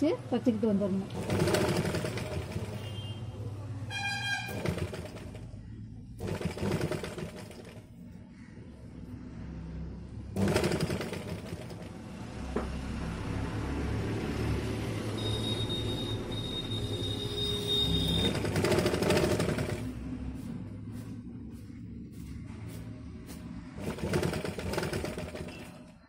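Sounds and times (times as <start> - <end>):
sewing machine stitching: 1.1 - 3.0, 4.4 - 5.5, 6.2 - 7.9, 10.4 - 12.0, 17.9 - 19.9, 23.8 - 26.0.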